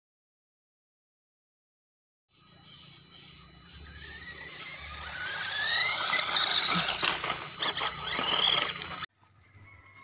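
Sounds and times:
toy truck motor whining: 0:02.3 - 0:10.0
tyres crunching over gravel: 0:05.7 - 0:09.1.

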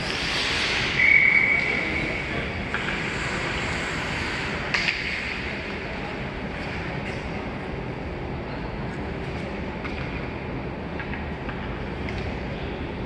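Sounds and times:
referee's whistle blast: 0:01.0 - 0:01.8
hockey stick hitting puck: 0:04.7 - 0:05.5.

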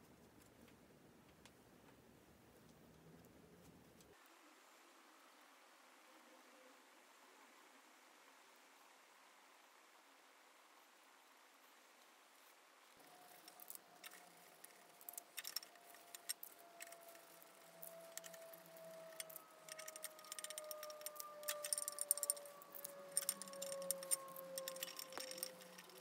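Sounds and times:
faint gliding tone: 0:12.9 - 0:26.0
metal tools clinking: 0:17.8 - 0:26.0.

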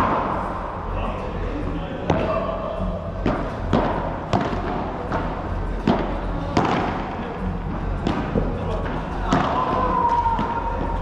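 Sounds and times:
ball bouncing off court and walls: 0:03.2 - 0:07.1
padel ball hit by rackets: 0:03.2 - 0:07.1, 0:09.3 - 0:09.7.

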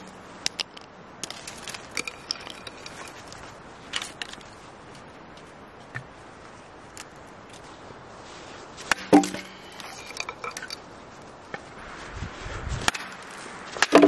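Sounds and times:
firewood pieces clacking together: 0:00.0 - 0:04.5, 0:08.9 - 0:10.9, 0:12.9 - 0:14.0
sharp hollow wood knocks: 0:08.9 - 0:09.5, 0:13.8 - 0:14.0.

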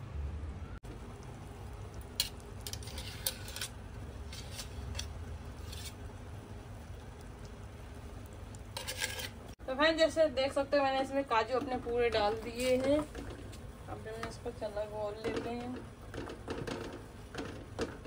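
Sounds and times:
sugar syrup bubbling: 0:00.8 - 0:09.7, 0:10.4 - 0:18.0
wooden spatula scraping paste: 0:02.6 - 0:06.0, 0:08.8 - 0:09.5.

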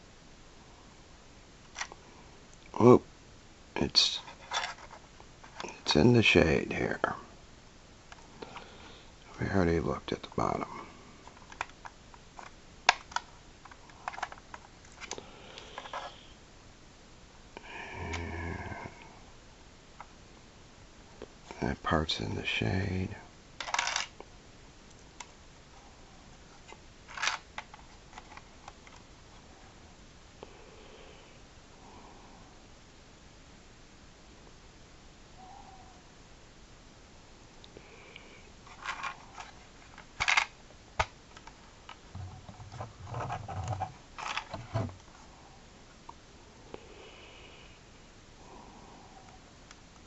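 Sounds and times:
fingers scraping plastic: 0:42.2 - 0:45.0.

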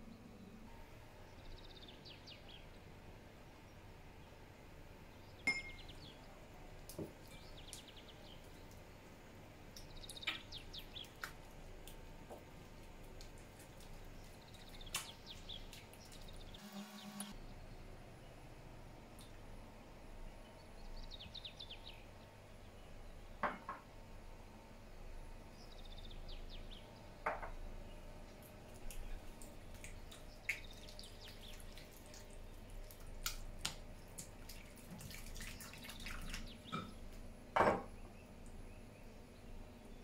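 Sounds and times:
glass clink: 0:05.5 - 0:05.9.

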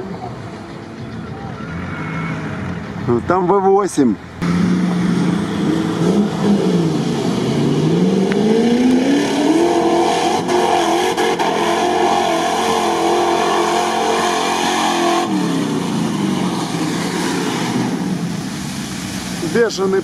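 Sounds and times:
engines revving hard: 0:04.4 - 0:18.5.

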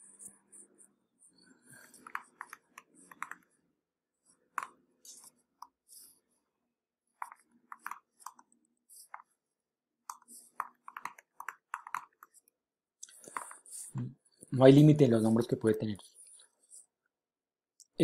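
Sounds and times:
computer keyboard typing: 0:01.8 - 0:03.5, 0:07.2 - 0:08.5, 0:10.1 - 0:12.4.

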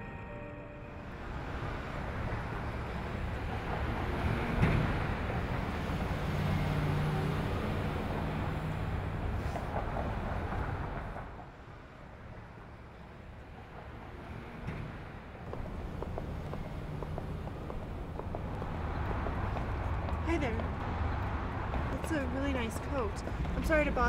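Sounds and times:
city traffic rumble: 0:00.0 - 0:24.0.

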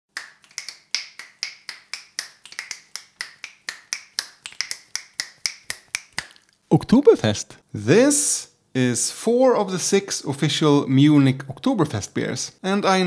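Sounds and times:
fingers snapping: 0:00.2 - 0:06.6.

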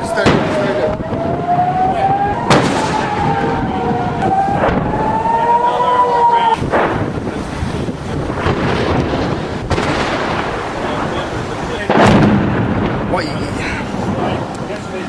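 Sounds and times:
sharp bangs: 0:00.0 - 0:05.8, 0:06.4 - 0:15.0
warning siren wailing: 0:00.0 - 0:06.7
wind buffeting microphone: 0:00.0 - 0:15.0.

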